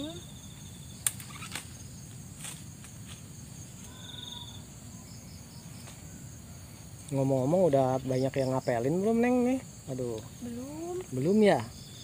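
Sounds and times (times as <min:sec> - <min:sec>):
high-pitched insect chorus: 0:00.0 - 0:12.0
pulsed insect trill: 0:00.0 - 0:12.0
leaves snapping and rustling: 0:01.0 - 0:04.0.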